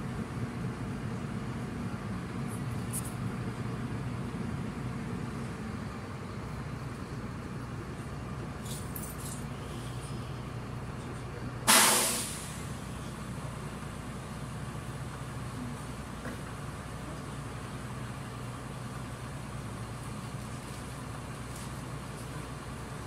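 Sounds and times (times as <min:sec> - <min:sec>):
bus engine hum: 0:00.0 - 0:23.0
compressed air hiss: 0:11.7 - 0:12.6.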